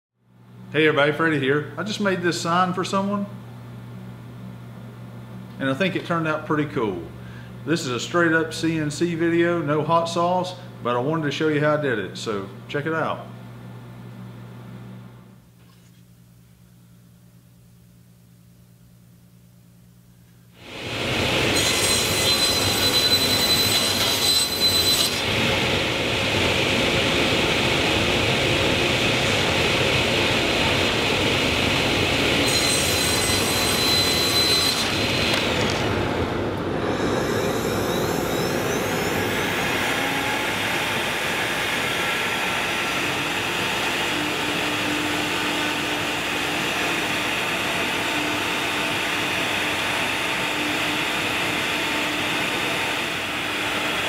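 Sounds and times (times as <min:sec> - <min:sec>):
table saw cutting plastic: 0:20.6 - 0:36.1, 0:36.8 - 0:54.0
router spindle cutting: 0:20.7 - 0:28.2, 0:36.8 - 0:54.0.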